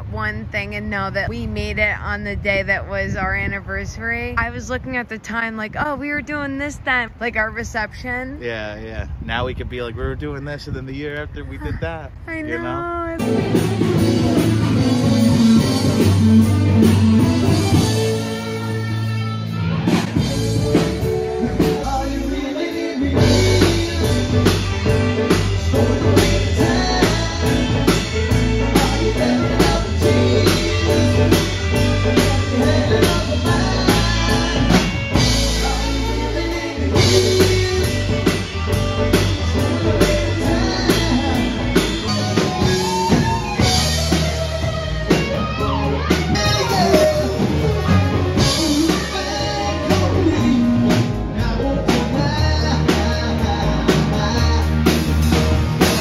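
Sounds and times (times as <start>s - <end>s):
guitar: 0.0s - 56.0s
electric keyboard: 10.5s - 56.0s
person singing: 12.3s - 16.3s, 20.7s - 43.9s, 45.8s - 56.0s
drum kit steady beat: 12.3s - 56.0s.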